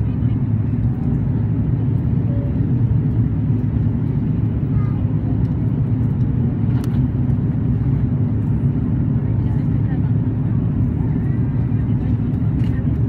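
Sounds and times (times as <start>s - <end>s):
jet engine drone: 0.0s - 13.0s.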